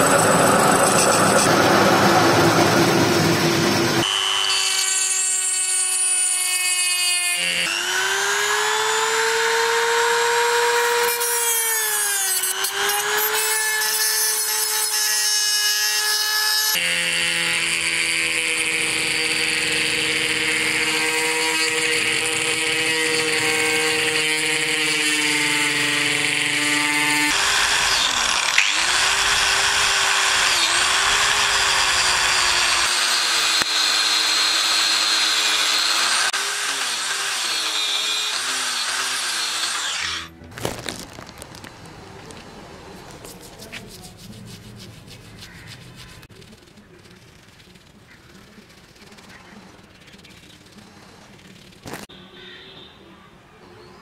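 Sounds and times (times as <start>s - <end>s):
metal lathe turning: 0.0s - 40.3s
rotary tool grinding metal: 0.0s - 40.4s
angle grinder wire brush scrubbing: 43.0s - 51.9s.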